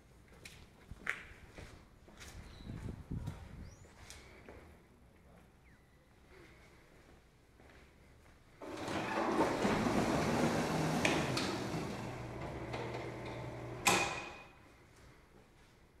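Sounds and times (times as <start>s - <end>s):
gate motor humming: 8.6s - 14.5s
gate shutting with loud bang: 8.7s - 14.6s.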